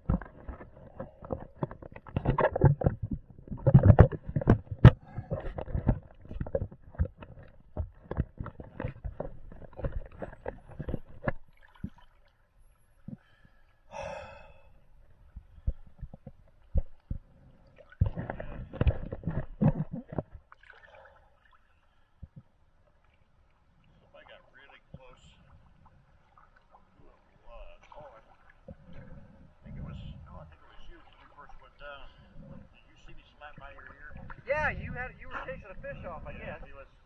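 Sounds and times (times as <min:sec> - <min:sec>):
diving gear knocking: 0:00.0 - 0:12.0, 0:15.3 - 0:20.5
water gurgling bubbles: 0:00.0 - 0:12.3, 0:15.3 - 0:22.5, 0:23.8 - 0:36.9.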